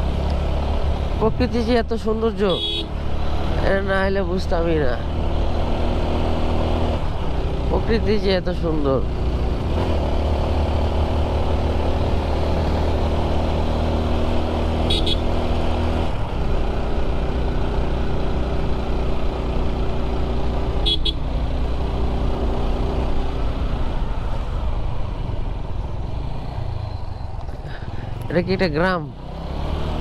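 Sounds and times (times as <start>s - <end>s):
motorcycle engine running: 0.0s - 30.0s
wind and road noise: 0.0s - 30.0s
horn toots: 2.5s - 2.9s, 14.8s - 15.4s, 20.8s - 21.2s.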